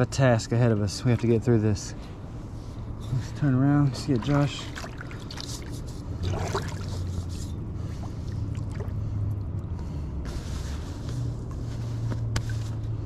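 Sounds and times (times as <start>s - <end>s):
steady low rumble: 0.0s - 13.0s
paddle strokes in water: 3.9s - 9.2s
rush of water: 4.0s - 7.2s.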